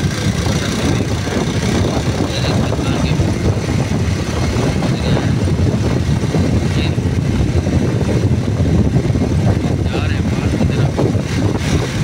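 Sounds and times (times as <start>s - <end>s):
moving vehicle rumble: 0.0s - 12.0s
wind buffeting microphone: 0.0s - 12.0s.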